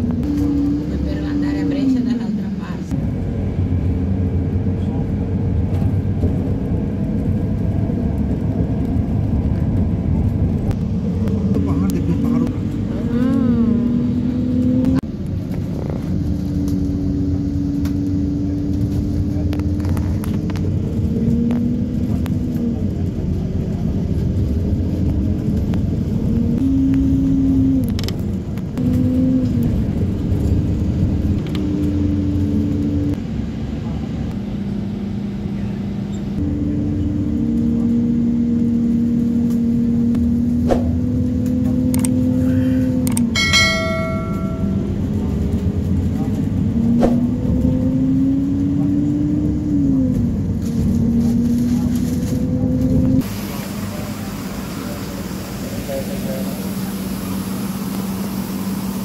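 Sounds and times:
bus engine: 0:00.0 - 0:59.0
road rumble: 0:00.0 - 0:59.0.

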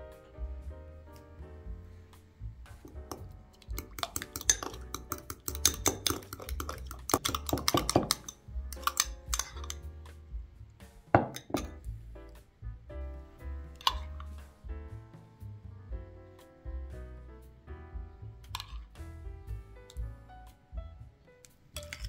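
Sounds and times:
background music: 0:00.0 - 0:22.0
utensil clinking against glass: 0:03.1 - 0:09.8, 0:11.2 - 0:11.8, 0:21.8 - 0:22.0.

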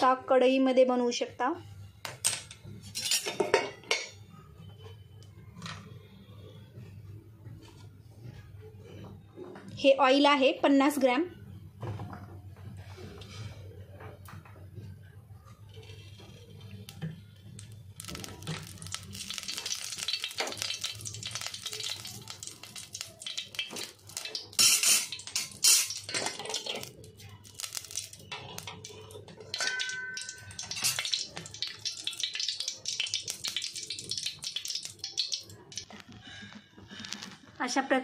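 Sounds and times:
oil crackling and sizzling: 0:15.5 - 0:37.8
metal pot knocks: 0:29.5 - 0:30.8.

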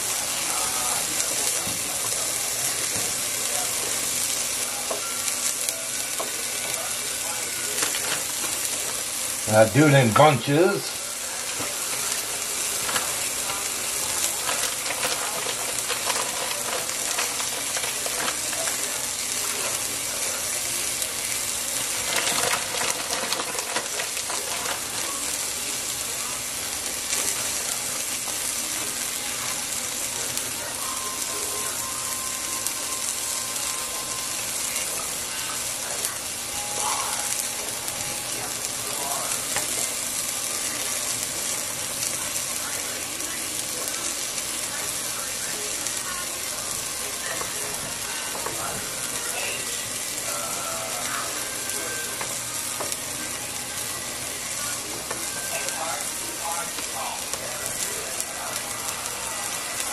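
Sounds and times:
soup sizzling in a pot: 0:00.0 - 0:59.9
plastic bag crinkling: 0:12.9 - 0:18.9.

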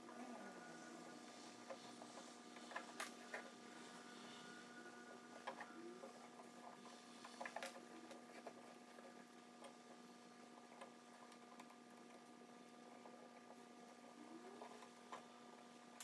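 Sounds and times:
faint hum: 0:00.0 - 0:16.0.

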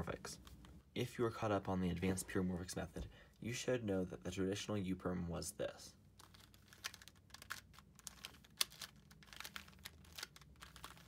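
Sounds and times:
plastic puzzle clicking and clacking: 0:06.2 - 0:11.0.

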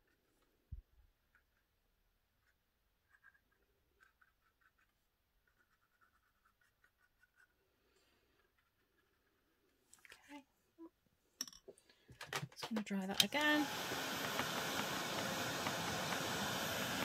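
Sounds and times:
paintbrush ticks and scratches: 0:02.4 - 0:07.6.

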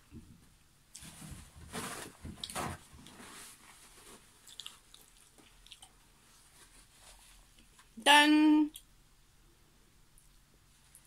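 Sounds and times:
wet chewing and smacking: 0:04.4 - 0:06.4.

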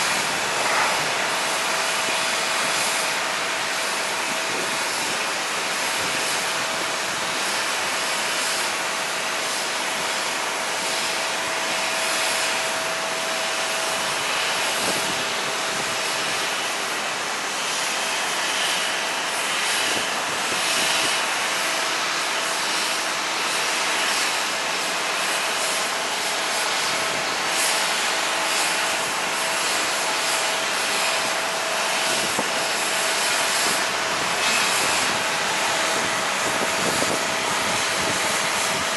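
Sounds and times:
jet engines rushing: 0:00.0 - 0:38.9
thin steady whine: 0:00.0 - 0:38.9.

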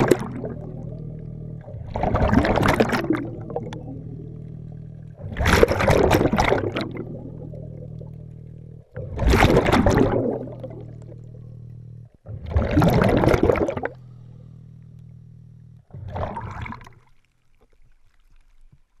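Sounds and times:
exhaled bubbles rushing underwater: 0:00.0 - 0:14.3, 0:15.8 - 0:18.7
regulator buzzing hum: 0:00.0 - 0:17.3.

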